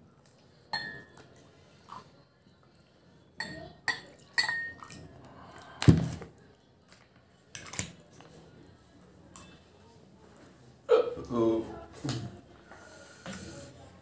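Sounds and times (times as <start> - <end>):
glass bottle and glasses clinking: 0.8 - 1.2, 3.4 - 5.0.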